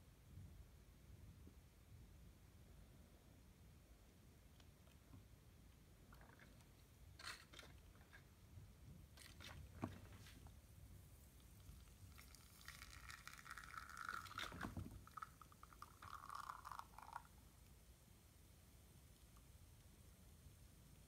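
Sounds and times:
espresso trickling and hissing: 0:11.3 - 0:17.4.

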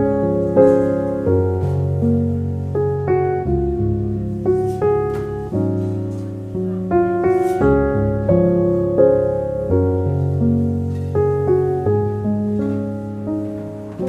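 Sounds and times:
slow piano music: 0:00.0 - 0:14.0.

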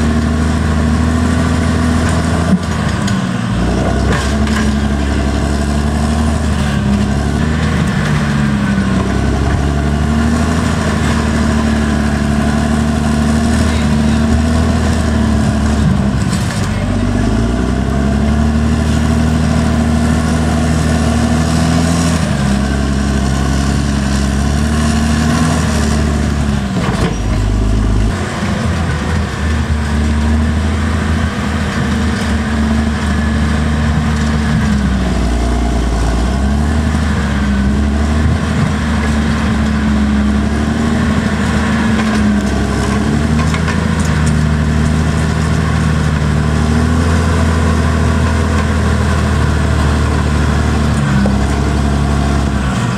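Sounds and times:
blade pushing dirt and rocks: 0:00.0 - 0:52.9
bulldozer diesel engine running hard: 0:00.0 - 0:52.9.

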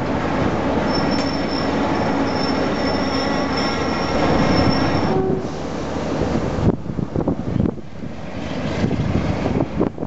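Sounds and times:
train coaches rumbling past: 0:00.0 - 0:10.0
train wheels squealing: 0:00.8 - 0:05.6.

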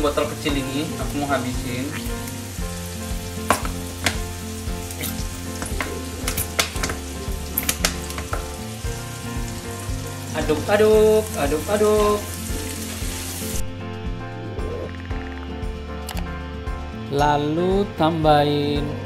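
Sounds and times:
food sizzling in a frying pan: 0:00.0 - 0:13.7.

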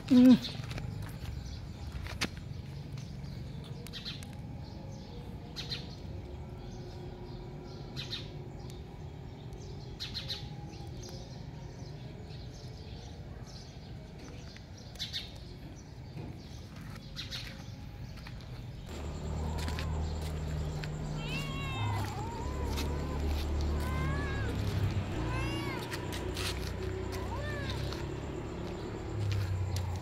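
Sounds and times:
small birds chirping: 0:00.0 - 0:30.0
low outdoor rumble: 0:18.1 - 0:30.0.

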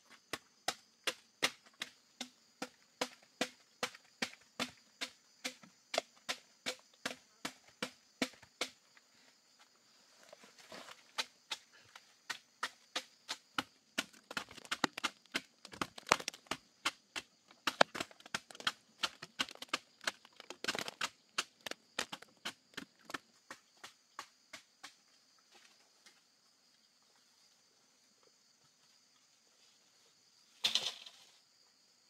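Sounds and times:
machete chopping bamboo: 0:00.2 - 0:08.8, 0:11.1 - 0:25.0.

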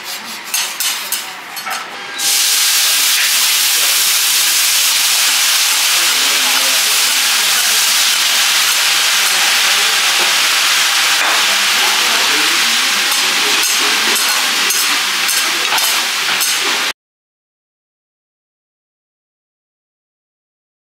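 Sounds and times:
cutlery clinking on plate: 0:00.5 - 0:01.9, 0:13.1 - 0:16.8
loud cooking hiss: 0:02.2 - 0:17.0.

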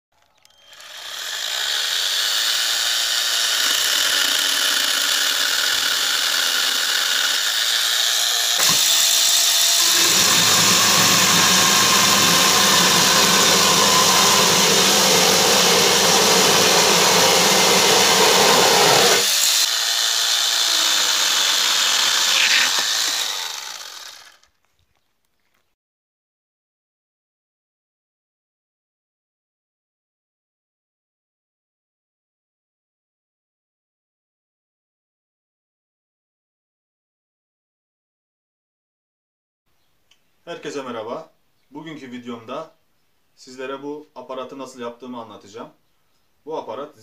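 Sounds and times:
small chainsaw cutting wood: 0:00.2 - 0:24.6.

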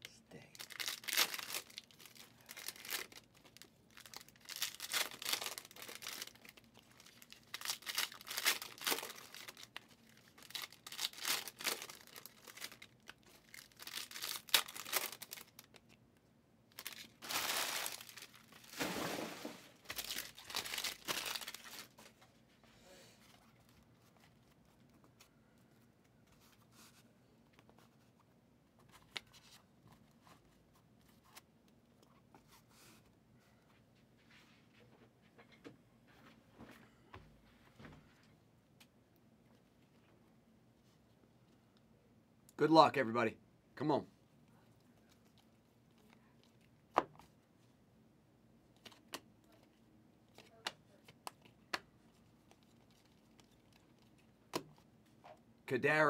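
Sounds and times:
foil wrappers tearing and crinkling: 0:00.6 - 0:15.7, 0:16.8 - 0:22.0.

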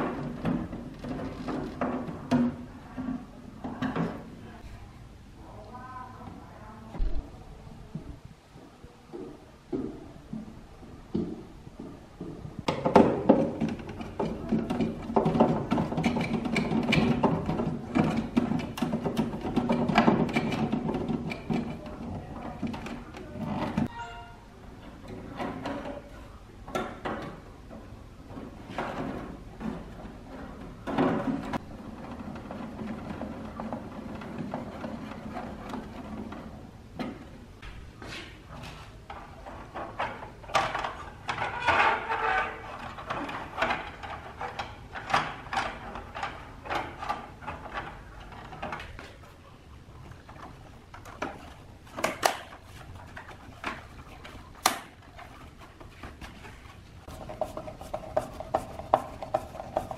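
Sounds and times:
plastic scraping and rubbing: 0:50.0 - 0:59.9.

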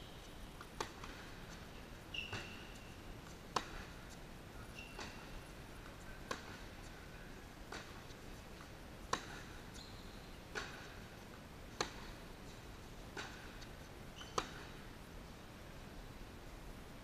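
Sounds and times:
tennis racket striking ball: 0:00.6 - 0:01.6, 0:02.2 - 0:04.2, 0:06.2 - 0:06.9, 0:07.6 - 0:09.8, 0:10.5 - 0:11.0, 0:11.7 - 0:12.3, 0:13.1 - 0:14.8
sneaker squeak on court: 0:02.1 - 0:03.0, 0:04.7 - 0:05.4, 0:09.3 - 0:10.9, 0:14.1 - 0:14.8.

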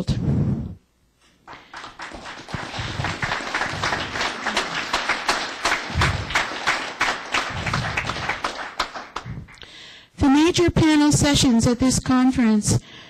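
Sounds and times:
audience applause: 0:01.5 - 0:09.6.

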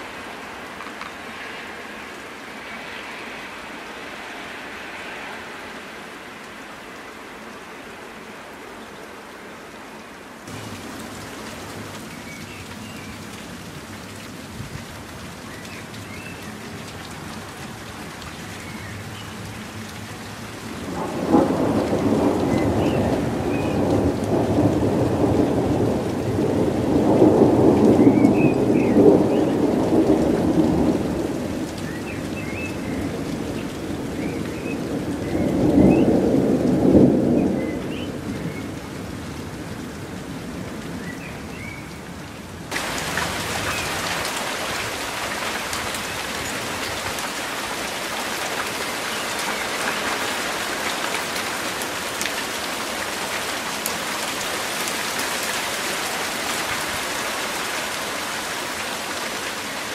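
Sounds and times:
sleet and rain hissing: 0:10.4 - 0:38.8, 0:42.7 - 0:59.9
thunder rumbling: 0:20.8 - 0:39.2.

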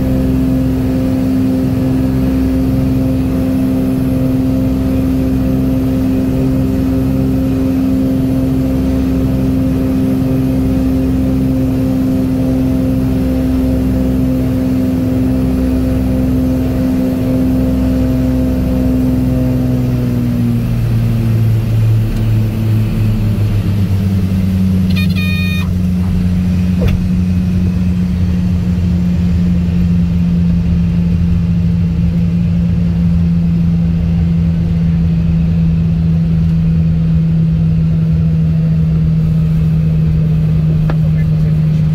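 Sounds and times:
airplane engine and propeller droning: 0:00.0 - 0:41.9
high-pitched warning horn: 0:24.9 - 0:25.8.

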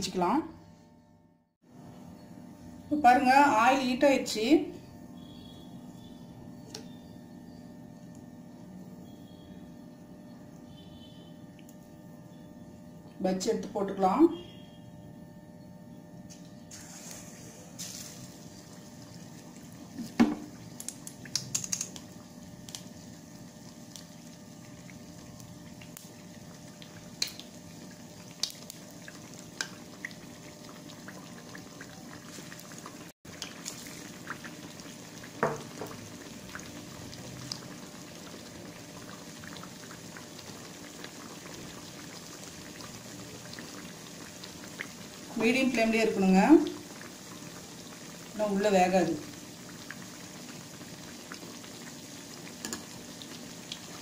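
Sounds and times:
deep-frying sizzle: 0:16.2 - 0:54.0
oil clicks and pops: 0:20.8 - 0:22.1, 0:28.3 - 0:28.8.

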